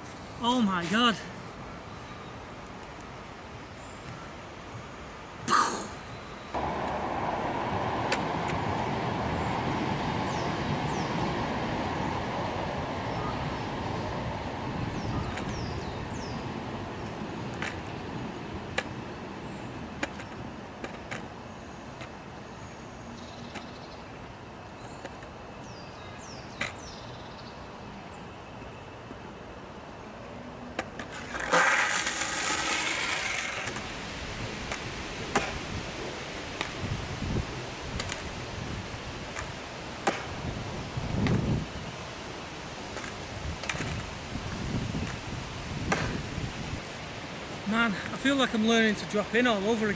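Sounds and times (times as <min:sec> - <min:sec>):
outdoor rushing noise: 0:05.5 - 0:22.3, 0:30.4 - 0:49.9
skateboard wheels rumbling on concrete: 0:06.6 - 0:22.3, 0:30.7 - 0:49.9.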